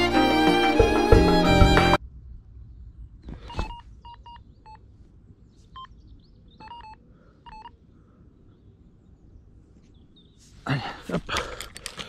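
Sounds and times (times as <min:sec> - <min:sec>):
bite alarm beeps: 0:03.5 - 0:04.8, 0:06.6 - 0:07.8.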